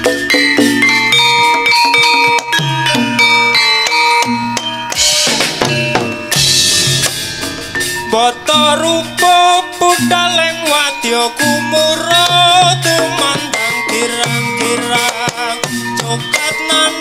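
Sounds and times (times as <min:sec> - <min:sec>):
drum strokes: 0:00.0 - 0:17.0
ringing metallophone notes: 0:00.0 - 0:17.0
wavering melodic line: 0:00.0 - 0:17.0.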